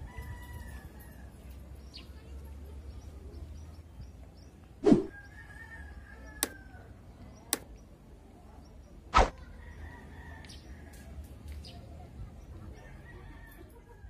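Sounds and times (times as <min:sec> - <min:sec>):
outdoor background noise: 0:00.0 - 0:14.0
whoosh sound effect: 0:04.8 - 0:05.1.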